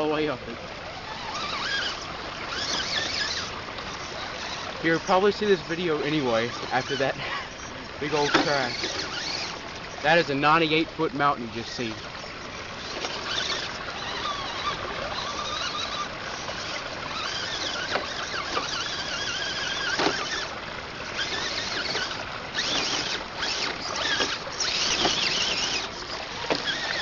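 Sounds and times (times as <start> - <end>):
electric motor and gears whining: 0.0 - 27.0
tyres knocking against rock: 17.8 - 20.4.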